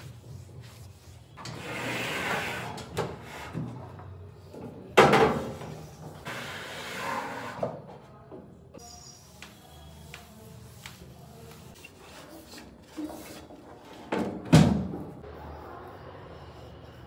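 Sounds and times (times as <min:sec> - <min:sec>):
cloth wiping a countertop: 0:00.0 - 0:01.4, 0:09.2 - 0:13.4.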